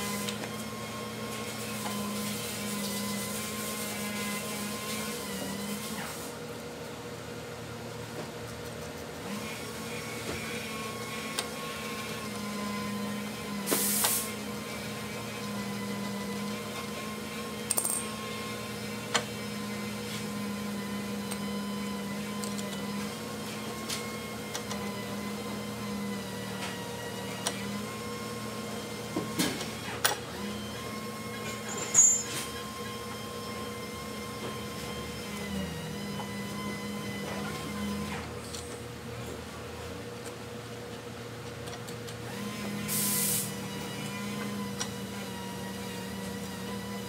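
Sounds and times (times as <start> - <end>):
tools clinking on metal: 17.7 - 18.1.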